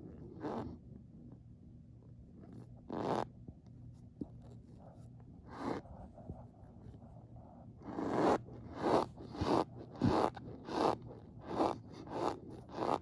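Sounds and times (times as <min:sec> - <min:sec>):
spoon scraping squeaky cornstarch: 0:08.0 - 0:13.0.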